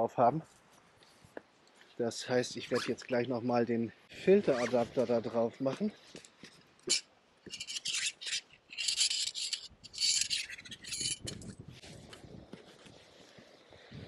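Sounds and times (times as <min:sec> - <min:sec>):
hands rubbing and scraping camera: 0:04.2 - 0:13.5.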